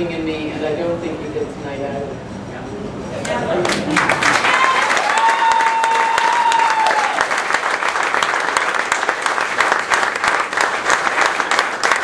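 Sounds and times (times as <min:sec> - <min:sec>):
crowd applauding: 0:03.6 - 0:12.0.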